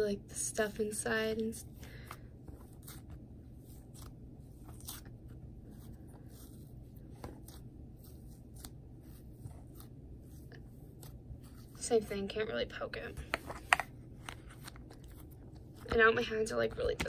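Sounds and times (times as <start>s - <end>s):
hands kneading slime: 0.4s - 17.0s.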